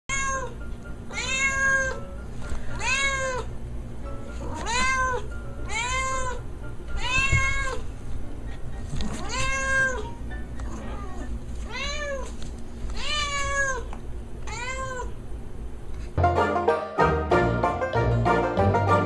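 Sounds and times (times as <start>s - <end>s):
cat meowing: 0.1s - 2.0s, 2.8s - 3.5s, 4.4s - 6.4s, 7.0s - 7.8s, 9.1s - 15.2s.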